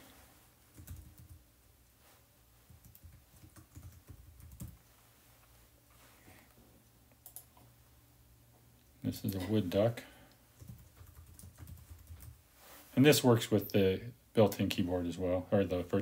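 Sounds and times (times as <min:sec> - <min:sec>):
typing on a keyboard: 0:00.7 - 0:01.4, 0:02.8 - 0:04.8, 0:07.2 - 0:07.6, 0:10.6 - 0:12.4.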